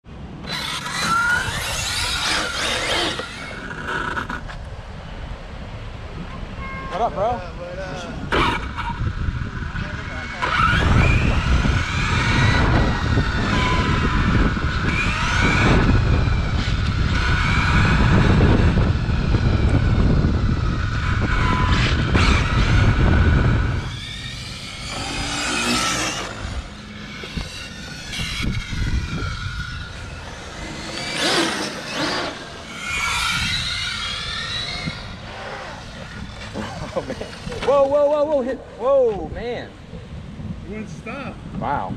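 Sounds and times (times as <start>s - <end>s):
tyres and wind rumble: 0.0s - 41.9s
rc cars passing by: 0.1s - 5.4s, 6.1s - 38.8s
rc car motor whine: 0.4s - 4.6s, 8.3s - 37.9s.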